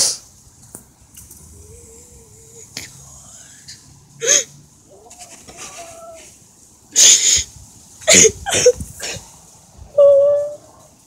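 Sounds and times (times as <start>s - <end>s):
faint whimper: 1.5s - 6.3s.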